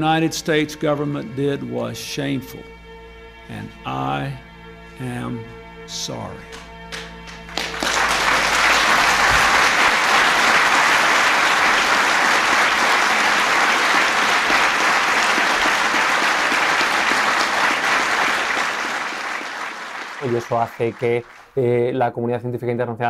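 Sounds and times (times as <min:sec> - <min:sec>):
audience applauding: 0:06.5 - 0:21.6.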